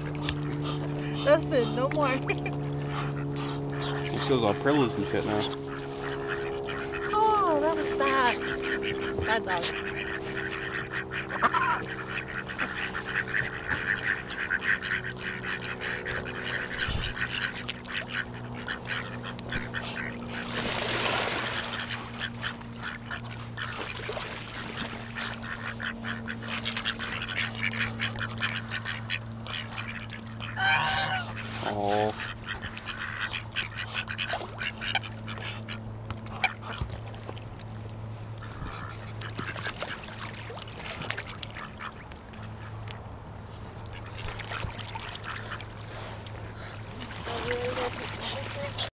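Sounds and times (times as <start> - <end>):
ducks quacking: 0.0 - 37.0, 38.4 - 43.0, 43.6 - 48.9
steady low hum: 0.0 - 48.9
goose honking: 0.2 - 20.5, 21.5 - 23.9, 25.1 - 36.8.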